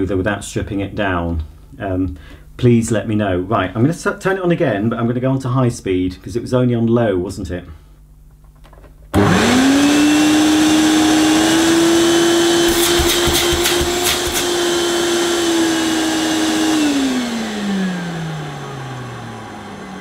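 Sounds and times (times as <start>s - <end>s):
vacuum cleaner motor whining: 9.1s - 20.0s.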